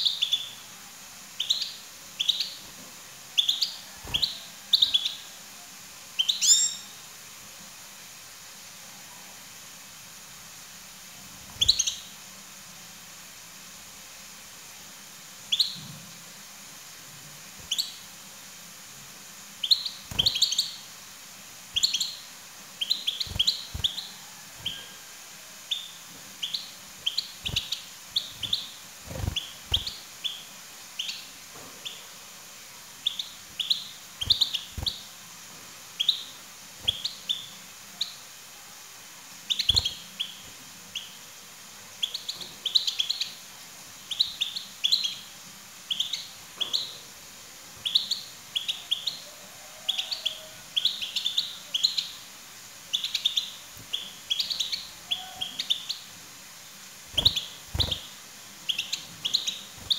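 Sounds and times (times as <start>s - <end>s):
goldfinches chirping: 0.0s - 0.8s, 1.4s - 5.4s, 6.2s - 7.0s, 11.6s - 12.2s, 15.4s - 15.8s, 17.6s - 18.1s, 19.6s - 21.0s, 21.7s - 25.0s, 25.6s - 32.2s, 33.0s - 35.2s, 35.9s - 38.2s, 39.5s - 41.3s, 41.9s - 43.4s, 44.0s - 47.0s, 47.8s - 49.2s, 49.9s - 52.3s, 52.9s - 56.1s, 57.0s - 59.9s.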